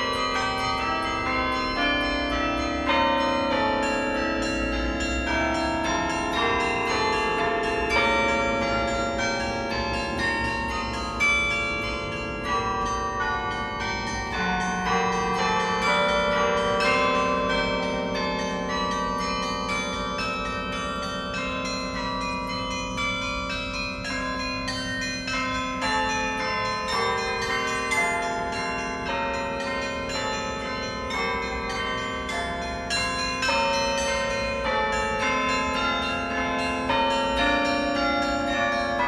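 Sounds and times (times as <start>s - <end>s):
carillon bells ringing: 0.0s - 39.0s.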